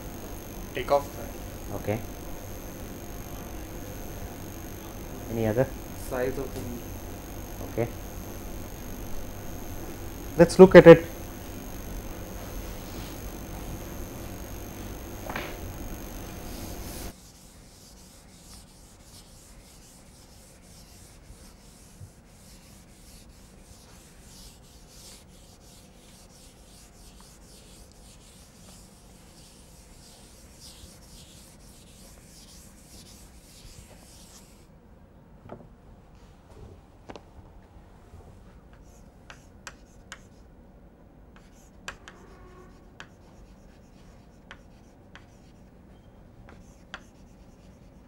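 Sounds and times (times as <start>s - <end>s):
steady hum with high whine: 0.0s - 48.0s
rubbing strokes on chalkboard: 17.1s - 34.6s.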